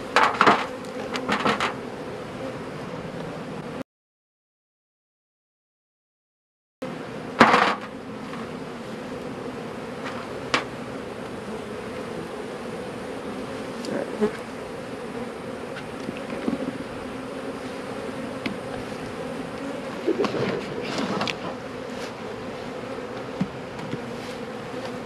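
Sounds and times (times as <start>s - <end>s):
honeybees buzzing: 0.0s - 3.8s, 6.8s - 25.0s.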